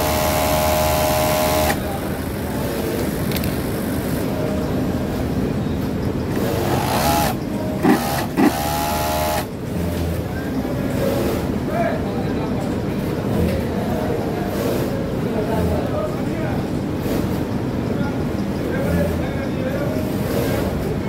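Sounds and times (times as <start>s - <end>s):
sewing machine running: 0.0s - 2.5s, 6.3s - 9.5s
hum of other machines: 0.0s - 21.0s.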